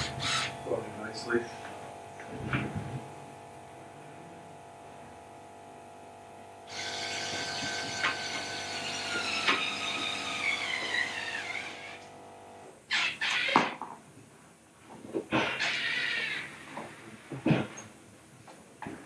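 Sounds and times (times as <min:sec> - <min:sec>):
electric screw gun whining: 0:00.0 - 0:00.6, 0:06.7 - 0:12.1.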